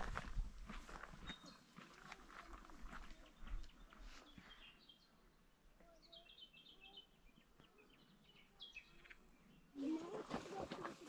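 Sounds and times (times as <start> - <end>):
faint birds chirping: 0.6 - 11.0.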